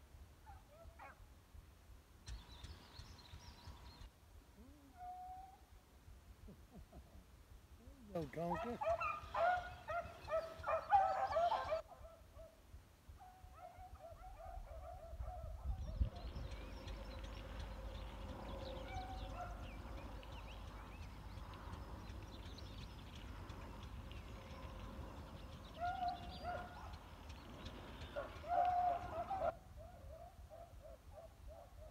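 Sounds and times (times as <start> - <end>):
beagles baying: 8.5 - 12.2, 25.4 - 27.1, 27.9 - 31.3.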